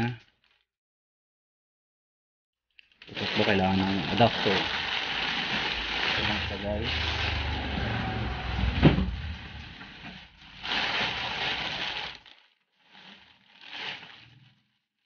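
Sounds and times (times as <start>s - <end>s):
plastic bag rustling: 2.8s - 15.0s.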